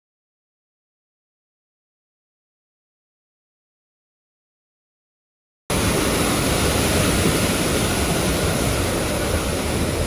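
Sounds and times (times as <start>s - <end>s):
stream rushing over rocks: 5.7s - 10.0s.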